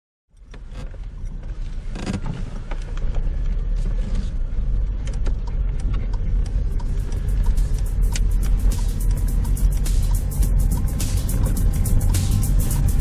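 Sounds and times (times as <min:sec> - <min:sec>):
car road noise rumble: 0:00.3 - 0:13.0
clicks and creaks: 0:00.4 - 0:04.3.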